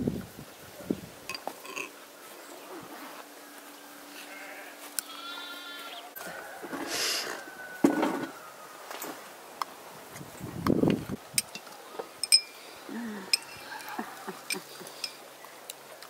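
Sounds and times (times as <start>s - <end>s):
livestock bleating: 4.2s - 6.1s.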